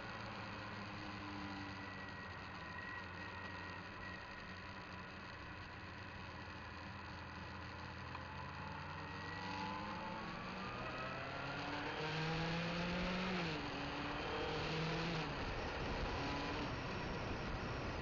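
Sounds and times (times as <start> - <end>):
motorcycle engine accelerating: 0.0 - 18.0
wind and road noise: 0.0 - 18.0.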